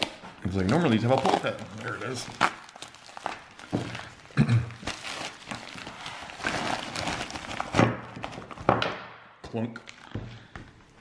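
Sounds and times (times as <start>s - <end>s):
plastic mailer crinkling: 0.0s - 8.7s.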